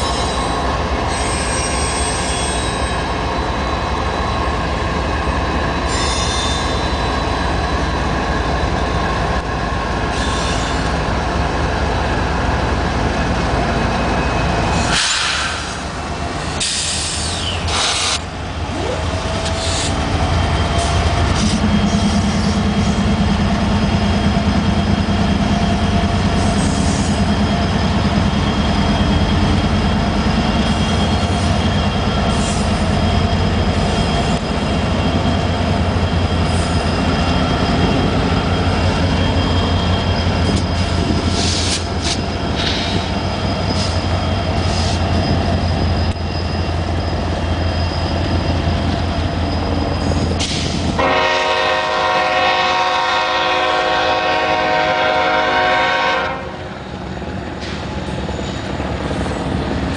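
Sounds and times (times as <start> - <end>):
diesel locomotive engines droning: 0.0 - 59.9
train wheel noise: 0.0 - 59.9
train horn chord: 51.0 - 56.6.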